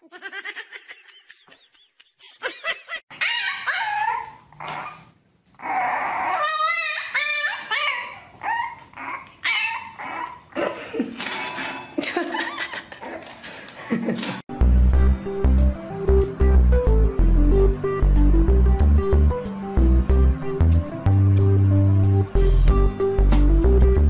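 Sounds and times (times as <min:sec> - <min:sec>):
puppies yipping and whining: 0:03.1 - 0:10.6.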